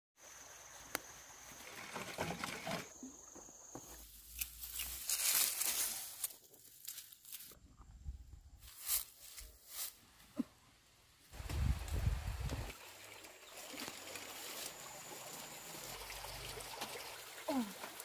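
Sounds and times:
rustling and crinkling: 3.8 - 7.6.

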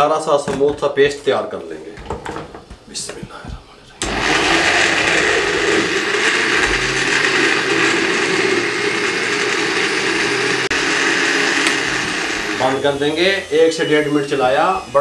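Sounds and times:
electric blender running: 4.0 - 15.0.

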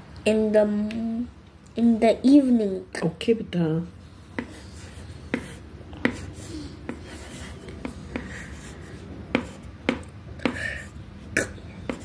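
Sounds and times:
stylus writing on tablet: 4.0 - 12.0.

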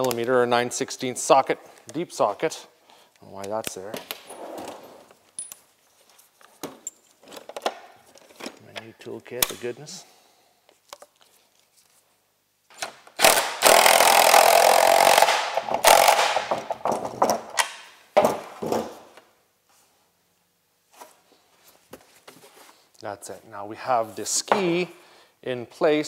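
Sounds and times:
cordless drill spinning: 13.2 - 16.3.

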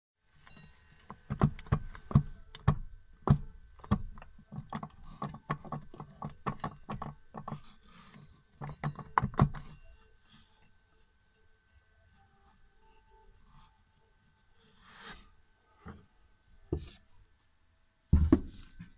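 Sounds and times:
metallic clicks and clunks of gears: 0.4 - 9.8.

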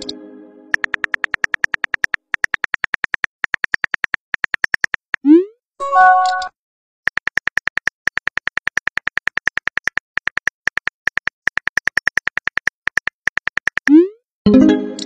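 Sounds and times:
phone keyboard ticks: 0.0 - 5.2, 7.1 - 14.0.

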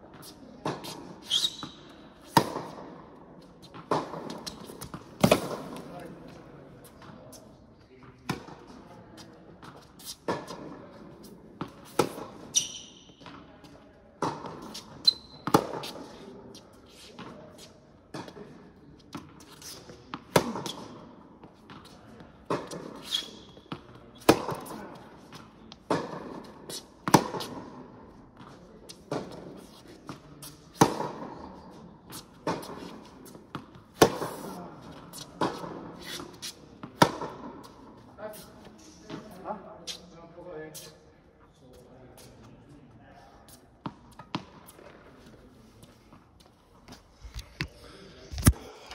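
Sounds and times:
shoes squeaking on court: 0.1 - 2.6, 3.4 - 7.4, 9.7 - 17.7, 21.6 - 25.8
racket striking tennis ball: 0.2 - 3.0, 3.6 - 6.4, 11.6 - 13.4, 14.2 - 16.2, 19.1 - 27.8, 28.9 - 31.4, 32.1 - 37.8, 43.9 - 44.9
tennis ball bouncing: 0.6 - 7.1, 11.6 - 13.4, 14.2 - 16.6, 19.1 - 27.8, 28.9 - 31.3, 32.1 - 37.8, 43.8 - 45.0.

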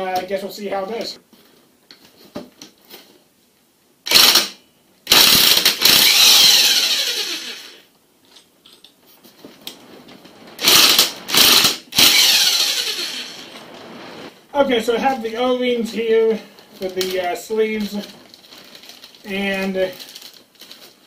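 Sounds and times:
electric impact wrench hammering: 4.1 - 7.8, 10.6 - 13.5.

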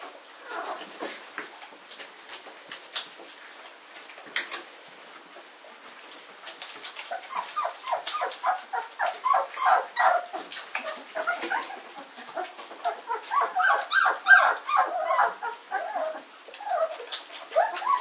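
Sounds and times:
puppies squeaking and whimpering: 0.4 - 1.1, 6.9 - 18.0.

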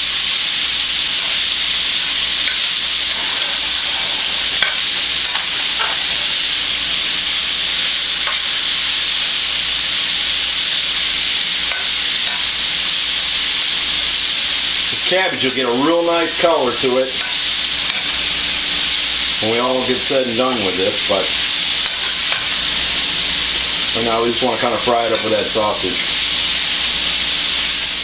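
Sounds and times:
food sizzling in a frying pan: 0.0 - 28.0
metal spatula scraping a pan: 1.1 - 6.6, 8.2 - 8.8, 11.6 - 12.9, 17.2 - 18.4, 21.8 - 22.8.

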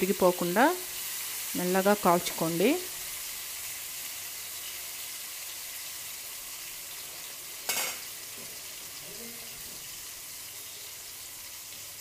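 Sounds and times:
fish sizzling in a pan: 0.0 - 12.0.

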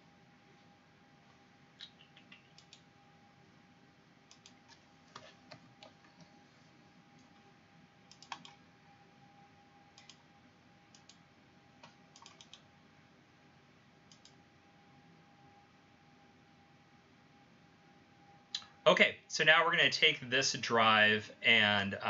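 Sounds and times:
faint steady hum: 0.0 - 22.0
computer mouse clicks: 1.8 - 2.9, 4.3 - 6.4, 8.1 - 8.6, 10.0 - 10.2, 10.9 - 11.2, 11.8 - 12.7, 14.1 - 14.4.

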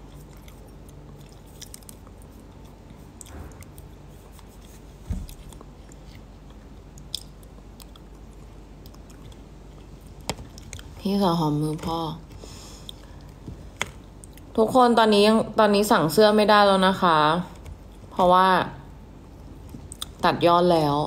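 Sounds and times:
quiet chewing: 0.0 - 11.0, 12.2 - 14.6, 19.5 - 20.2
low room hum: 0.0 - 21.0
soft thump: 5.0 - 5.4.

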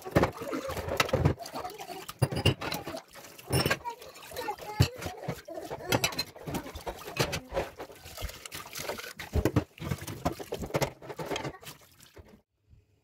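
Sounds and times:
dishes clinking against sink: 0.0 - 8.1
tap water splashing into sink: 0.0 - 12.4.

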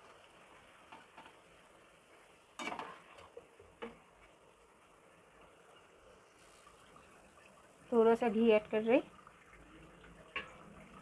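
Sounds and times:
spatula scraping a pan: 2.6 - 3.4.

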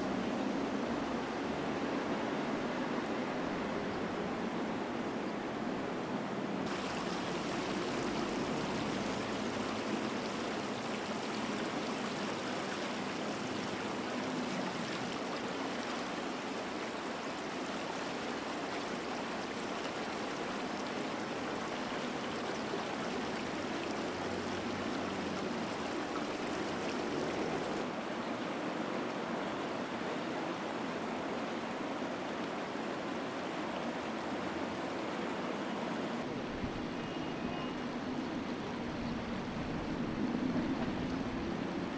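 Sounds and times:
stream water splashing: 6.6 - 41.9.

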